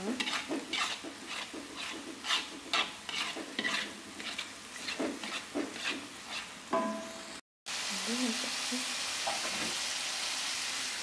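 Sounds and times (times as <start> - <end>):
spatula scraping a wok: 0.0 - 6.8
frying sizzle: 0.0 - 11.0
utensil clinking on pan: 6.7 - 7.3.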